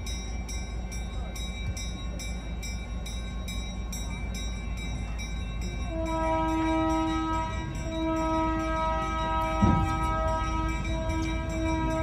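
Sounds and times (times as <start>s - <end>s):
train rumble: 0.0s - 12.0s
train horn blast: 5.9s - 12.0s.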